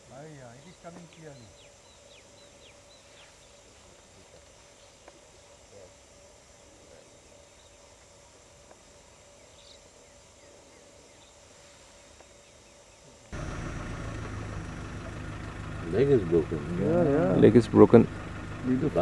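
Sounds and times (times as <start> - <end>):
faint chirps: 0.0 - 16.8
vehicle engine idling: 13.3 - 19.0
low hum: 13.4 - 19.0.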